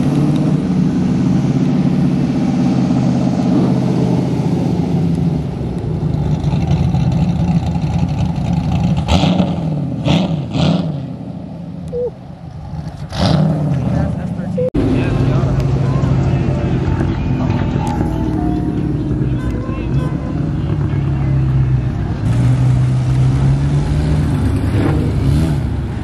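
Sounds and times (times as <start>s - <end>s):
engine throttle blips: 11.8s - 26.0s
car engine running: 12.0s - 25.1s.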